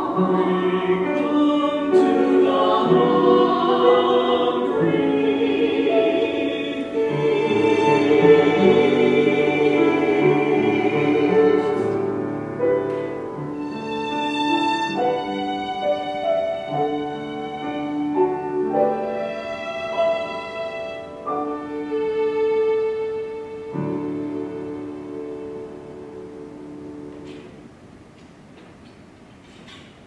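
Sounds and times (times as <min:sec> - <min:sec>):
group of singers: 0:00.0 - 0:17.6
violin slow melody: 0:00.0 - 0:26.6.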